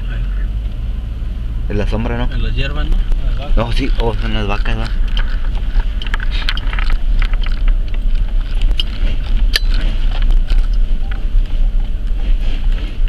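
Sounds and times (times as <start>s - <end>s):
engine and road rumble: 0.0s - 13.0s
small items rattling: 3.4s - 11.2s.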